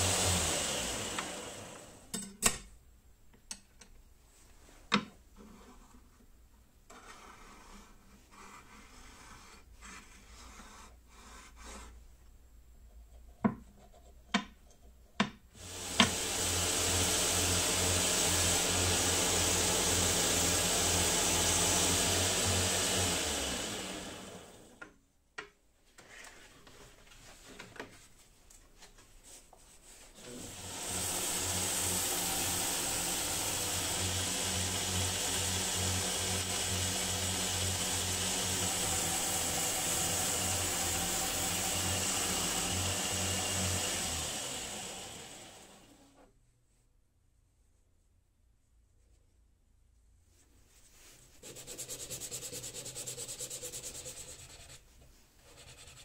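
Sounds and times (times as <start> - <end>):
belt grinder humming: 0.0 - 2.1, 15.6 - 24.8, 30.2 - 46.0
wood sanding on belt: 15.6 - 24.5, 29.8 - 45.6, 50.9 - 56.0.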